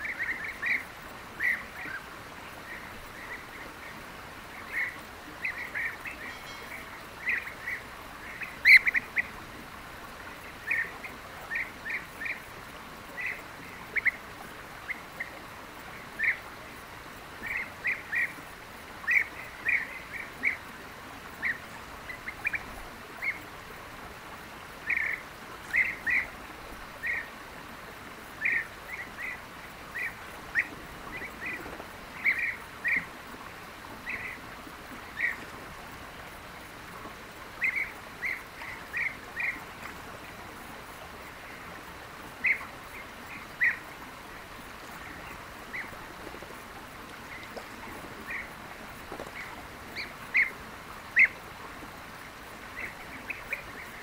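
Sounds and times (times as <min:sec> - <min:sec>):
bee-eaters calling: 0:04.7 - 0:09.4.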